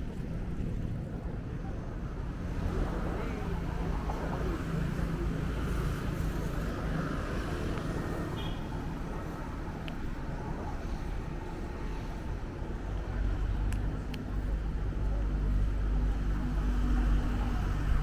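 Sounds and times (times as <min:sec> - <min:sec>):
street traffic: 0:00.0 - 0:18.0.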